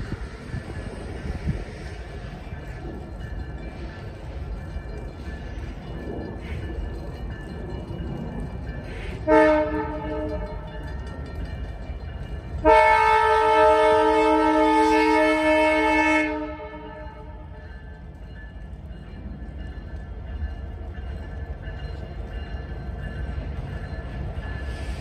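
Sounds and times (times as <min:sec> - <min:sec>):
locomotive air horn blasts: 0:09.2 - 0:10.7, 0:12.6 - 0:17.5.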